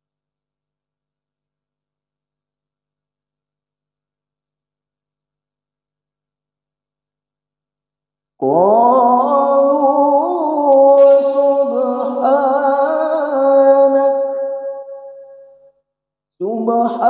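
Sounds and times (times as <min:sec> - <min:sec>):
man reciting melodically: 0:08.4 - 0:14.9, 0:16.4 - 0:17.0.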